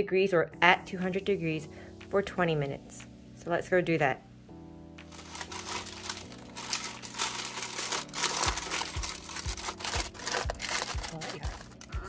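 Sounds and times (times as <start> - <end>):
paper crinkling: 5.0 - 12.0.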